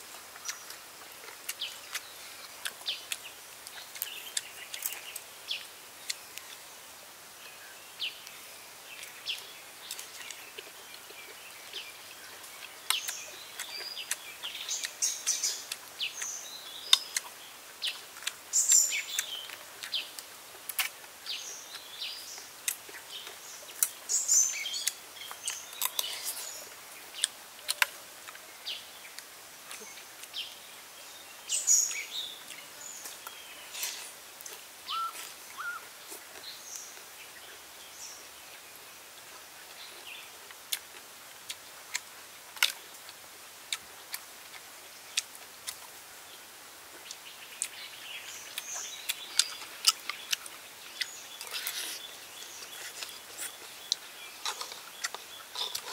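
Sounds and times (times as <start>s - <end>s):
birds chirping: 0.4s - 20.3s, 21.2s - 40.4s, 44.9s - 55.9s.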